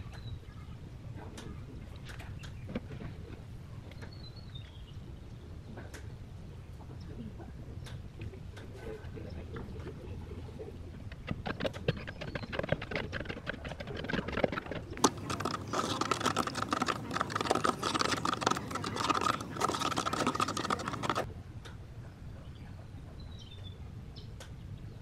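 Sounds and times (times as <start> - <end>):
wooden stick scraping resin in jug: 11.6 - 21.3.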